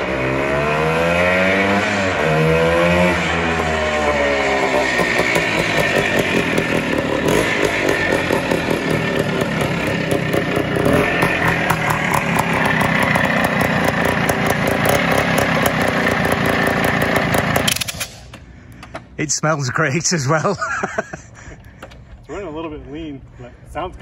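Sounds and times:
motorcycle engine running: 0:00.0 - 0:18.0
man talking: 0:19.2 - 0:20.7, 0:22.3 - 0:24.0.

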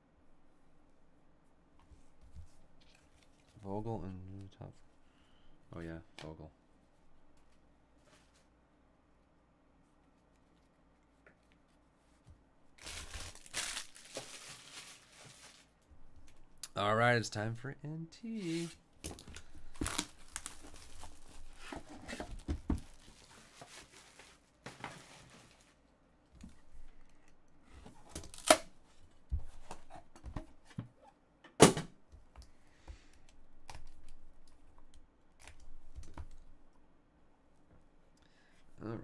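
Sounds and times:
plastic wrap tearing and crumpling: 0:12.8 - 0:15.8, 0:19.4 - 0:21.6, 0:22.8 - 0:24.6, 0:28.2 - 0:28.7.

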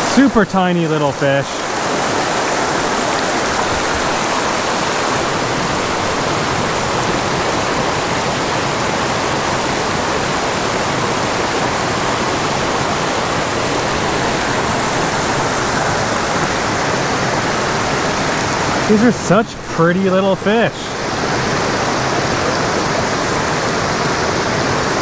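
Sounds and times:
creek rushing over boulders: 0:00.0 - 0:25.0.

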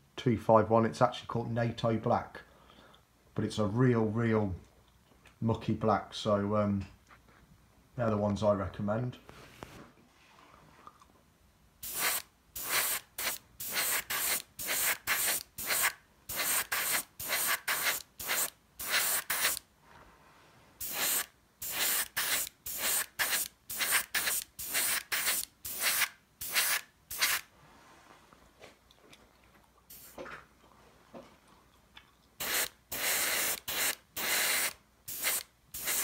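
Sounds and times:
airbrush hissing bursts: 0:11.8 - 0:19.6, 0:20.8 - 0:27.5, 0:32.4 - 0:36.0.

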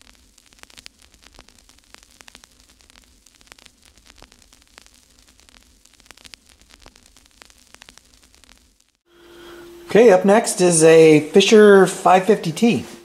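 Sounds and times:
crackling static clicks and pops: 0:00.0 - 0:12.8
steady low hum: 0:09.1 - 0:13.0.

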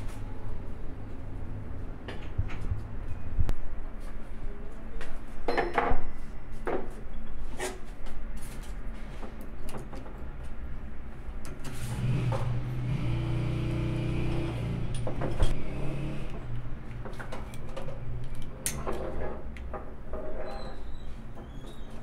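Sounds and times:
steady engine hum: 0:11.9 - 0:16.9.

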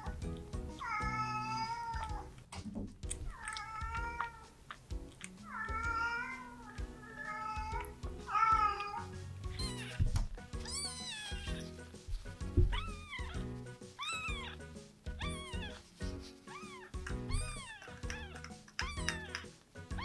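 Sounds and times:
soft background music: 0:00.0 - 0:20.0
kitten mewing: 0:03.3 - 0:04.6, 0:05.4 - 0:10.0, 0:14.0 - 0:15.8, 0:16.5 - 0:20.0.

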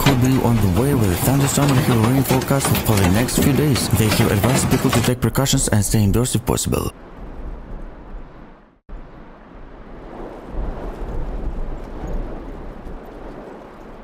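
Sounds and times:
hailstones pattering: 0:00.0 - 0:05.1
wind buffeting microphone: 0:00.0 - 0:05.1, 0:06.9 - 0:14.0.

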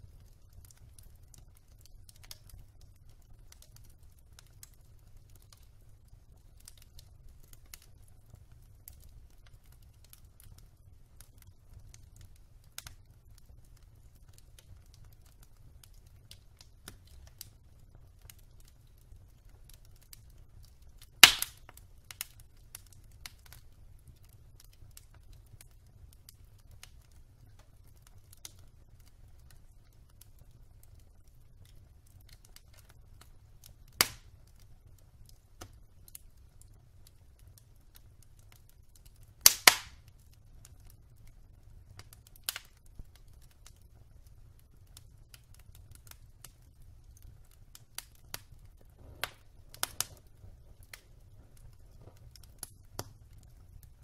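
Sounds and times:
fire crackling: 0:00.0 - 0:54.0
burning logs popping: 0:00.1 - 0:54.0.

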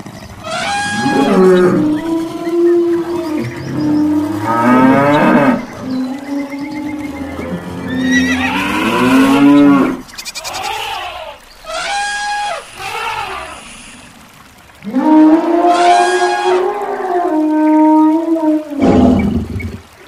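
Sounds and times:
animal cries bending in pitch: 0:10.5 - 0:13.7.

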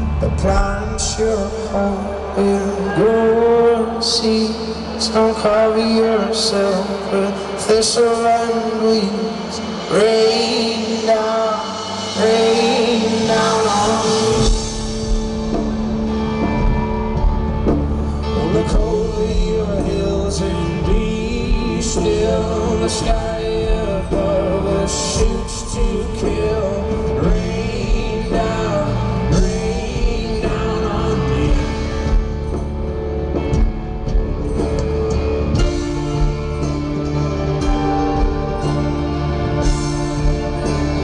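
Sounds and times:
person singing: 0:00.0 - 0:32.6
live folk-rock band: 0:00.0 - 0:41.0
heavy bass and drum beat: 0:06.2 - 0:41.0.

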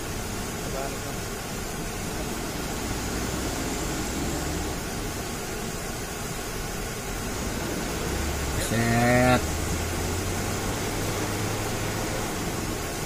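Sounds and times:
hiss: 0:00.0 - 0:13.0
diesel truck engine droning: 0:02.2 - 0:05.2, 0:07.2 - 0:13.0.

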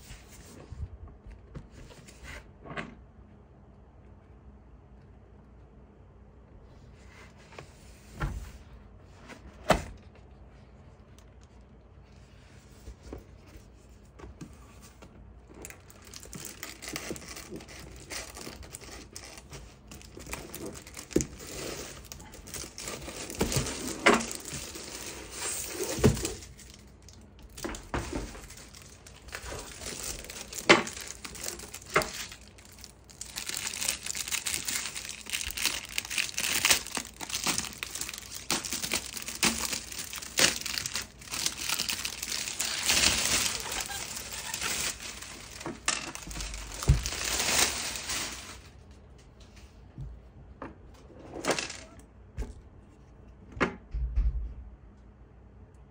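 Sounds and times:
plastic wrap crinkling and tearing: 0:15.5 - 0:48.8.

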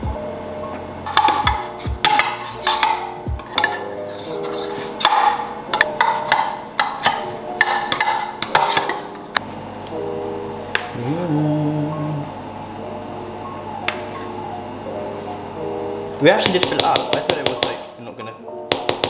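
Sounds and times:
background music: 0:00.0 - 0:19.0
metal spoon scraping metal tin: 0:02.1 - 0:05.1.

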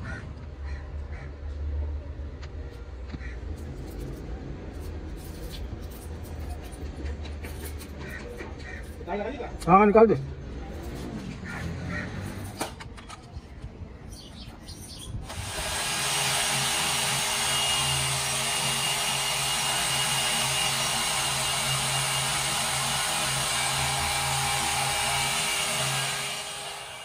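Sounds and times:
rotary tire buffer whining: 0:15.2 - 0:27.0.

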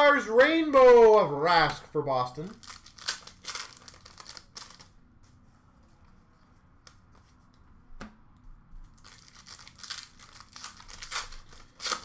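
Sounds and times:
cards rustling and sliding: 0:09.0 - 0:12.0.

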